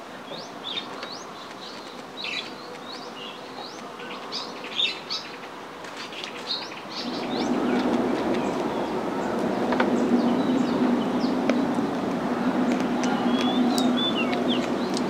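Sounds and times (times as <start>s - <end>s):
birds chirping: 0.2s - 15.0s
low engine hum: 7.0s - 15.0s.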